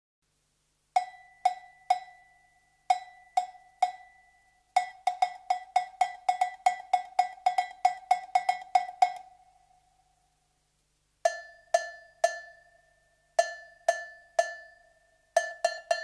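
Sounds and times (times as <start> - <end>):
cowbell struck with drumstick: 1.0 - 9.4, 11.3 - 16.0.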